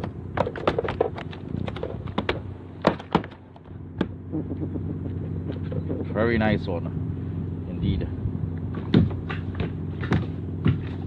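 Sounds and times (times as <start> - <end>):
sharp taps and knocks: 0.0 - 4.2.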